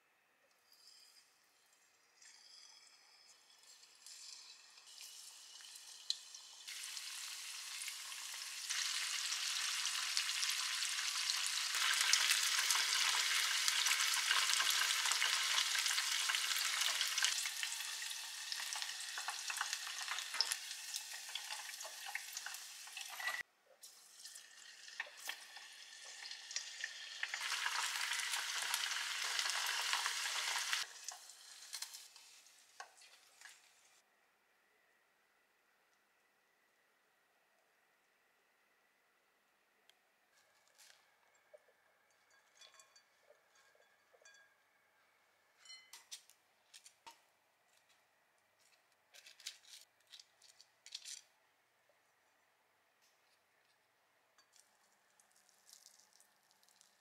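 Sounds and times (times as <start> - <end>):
oil sizzling from deep-frying: 2.8 - 34.0, 54.4 - 57.0.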